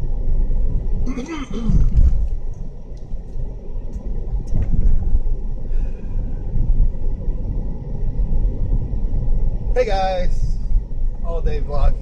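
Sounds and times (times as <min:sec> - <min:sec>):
car rumble inside cabin: 0:00.0 - 0:12.0.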